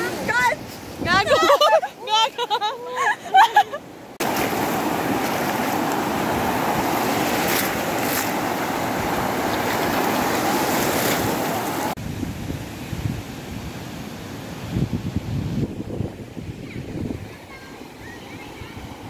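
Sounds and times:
waves breaking on shore: 0:00.0 - 0:19.0
wind buffeting microphone: 0:14.5 - 0:19.0.

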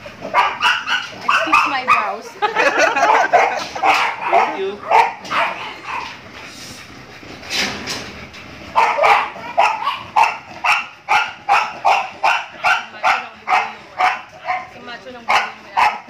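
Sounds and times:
dog barking: 0:00.2 - 0:02.2, 0:03.0 - 0:06.2, 0:08.7 - 0:16.0.

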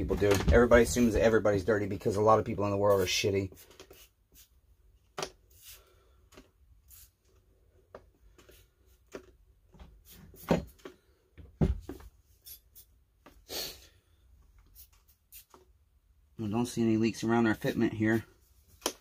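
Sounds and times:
spray bottle spritzes: 0:12.4 - 0:12.9, 0:14.7 - 0:15.6.

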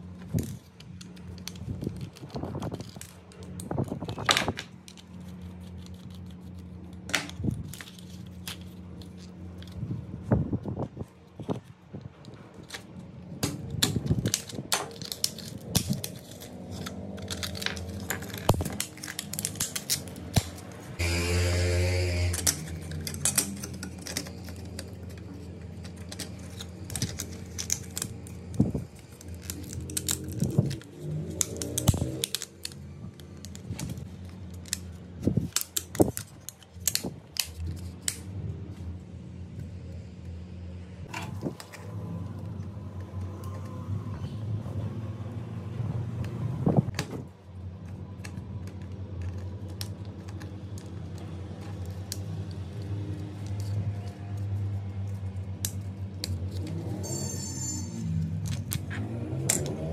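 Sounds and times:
loud humming sound: 0:15.7 - 0:34.1.

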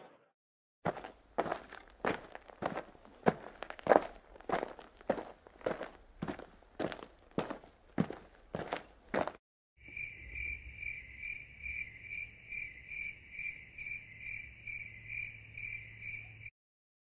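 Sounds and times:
cricket chirping: 0:09.8 - 0:16.5.

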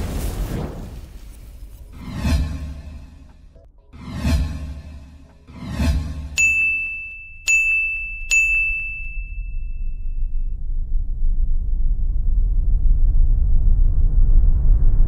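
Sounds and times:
low rumble: 0:00.0 - 0:06.4, 0:09.0 - 0:15.0
whoosh: 0:00.0 - 0:06.4
bright dings: 0:06.4 - 0:10.5.

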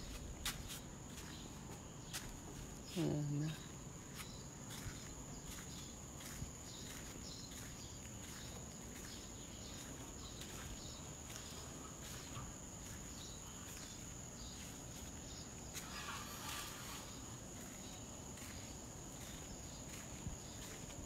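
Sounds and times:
faint footsteps: 0:00.0 - 0:21.0
high-pitched insect drone: 0:09.5 - 0:20.9.

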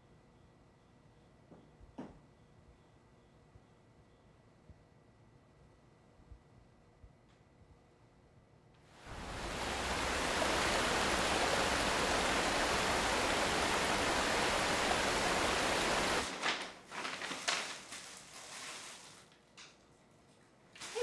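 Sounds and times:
loud rushing hiss: 0:09.0 - 0:16.4
paper bag rustling: 0:16.2 - 0:19.5.

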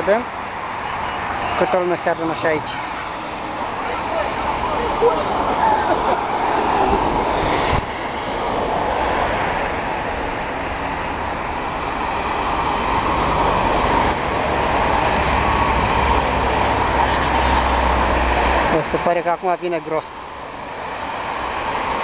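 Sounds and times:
street traffic: 0:00.0 - 0:22.0
wind on microphone: 0:05.0 - 0:10.0.

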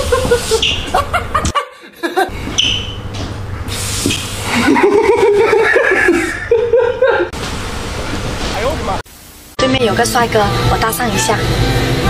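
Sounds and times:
hand-pump water sprayer hissing: 0:00.0 - 0:00.9, 0:03.7 - 0:04.8
man laughing: 0:00.0 - 0:02.4, 0:04.4 - 0:07.3.

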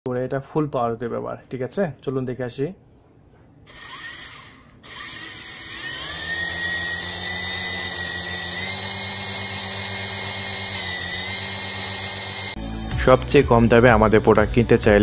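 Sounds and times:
toy helicopter motors whining: 0:03.7 - 0:12.6.

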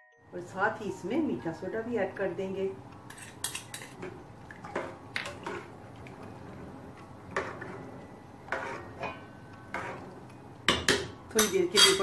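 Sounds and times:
spoon stirring in metal pot: 0:03.0 - 0:12.0
spoon clinking against pot: 0:10.7 - 0:12.0.

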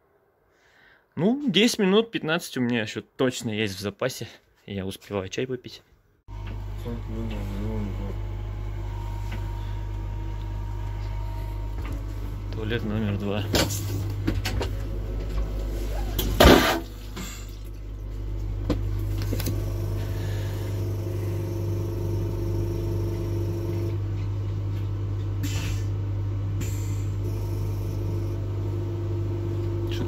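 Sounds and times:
low electrical drone: 0:06.3 - 0:24.1
mechanical hum: 0:06.3 - 0:30.0.

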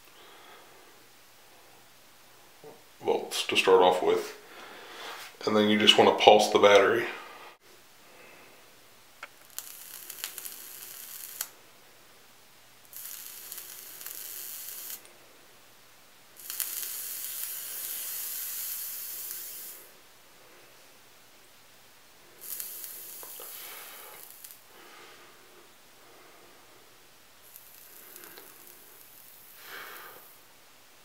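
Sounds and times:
coil sizzling and crackling: 0:09.2 - 0:11.6, 0:12.8 - 0:15.1, 0:16.3 - 0:20.0, 0:22.2 - 0:24.8, 0:27.4 - 0:30.4.

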